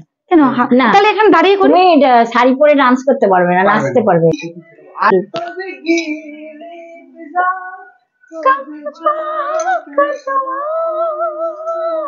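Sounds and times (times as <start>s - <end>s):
woman singing unaccompanied: 3.6s - 12.0s.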